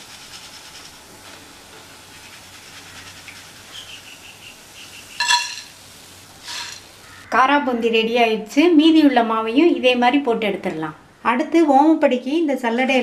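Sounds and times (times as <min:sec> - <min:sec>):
faint steady hiss: 0:00.0 - 0:13.0
ladle clinking on plate: 0:05.2 - 0:05.8.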